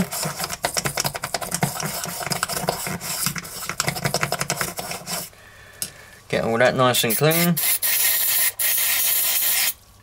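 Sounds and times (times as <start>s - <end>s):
toothbrush scrubbing metal bowl: 0.0s - 5.3s.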